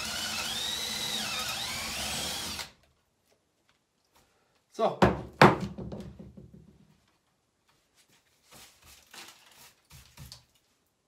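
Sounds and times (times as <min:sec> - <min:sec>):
drill knocking on wooden workbench: 0:05.0 - 0:06.7
faint scraping and handling: 0:07.6 - 0:10.9.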